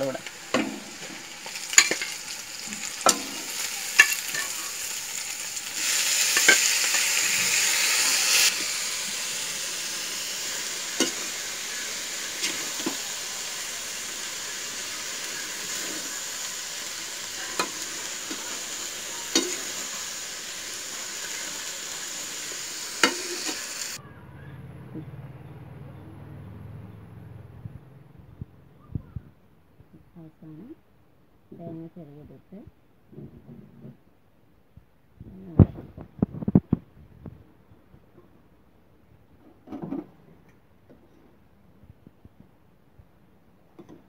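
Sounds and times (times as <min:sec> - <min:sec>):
food sizzling in oil: 0:00.0 - 0:24.0
spatula scraping a pan: 0:23.0 - 0:24.0.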